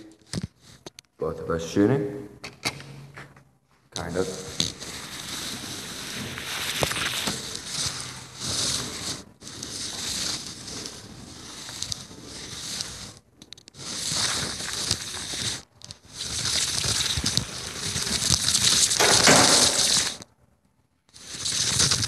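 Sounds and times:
camera handling noise: 16.2 - 20.3.

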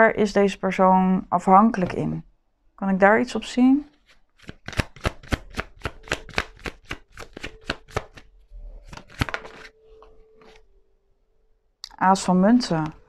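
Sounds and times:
cards being shuffled: 3.9 - 10.6.

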